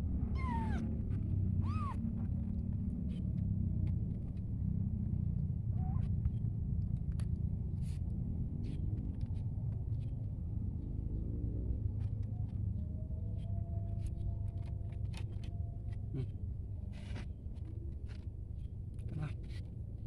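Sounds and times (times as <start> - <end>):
vehicle engine rumble: 0.0 - 20.0
kitten meowing: 0.3 - 0.8, 1.6 - 2.0.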